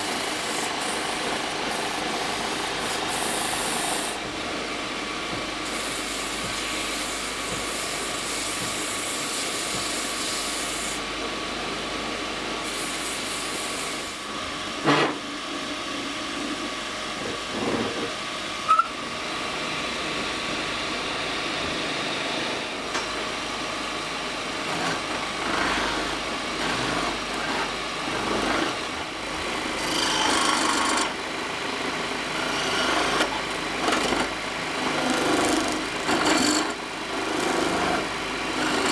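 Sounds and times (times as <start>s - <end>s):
chisel scraping spinning wood: 0.0s - 4.2s, 24.7s - 28.9s, 29.8s - 31.2s, 32.3s - 38.9s
hand sanding spinning wood: 0.0s - 4.2s, 24.6s - 28.9s, 32.4s - 38.9s
wood lathe running: 0.0s - 4.3s, 24.7s - 38.9s.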